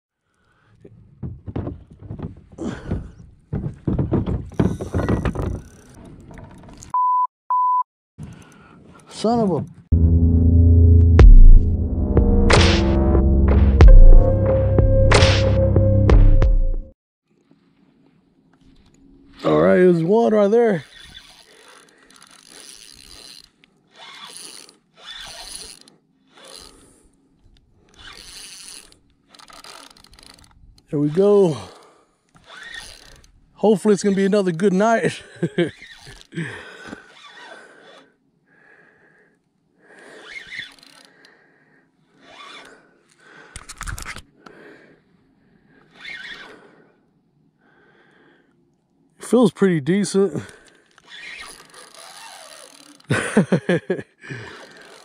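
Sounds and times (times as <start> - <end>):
rope knocking and scraping on boat: 0.9 - 6.9
fishing reel cranking: 5.6 - 6.0, 20.7 - 27.0, 27.8 - 33.4, 35.7 - 36.4, 40.1 - 41.4, 50.5 - 53.2, 54.4 - 55.0.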